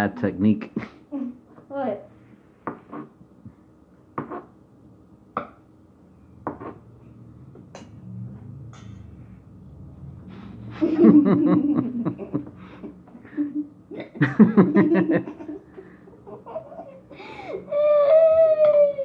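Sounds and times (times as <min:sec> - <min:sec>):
laughter: 0:10.7 - 0:12.6, 0:13.2 - 0:17.0.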